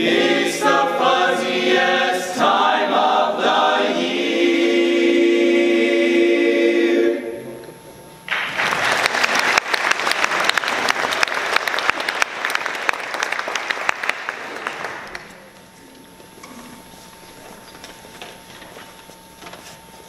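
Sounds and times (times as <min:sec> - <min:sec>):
choir singing held chord: 0:00.0 - 0:07.7
audience applause: 0:08.3 - 0:15.4.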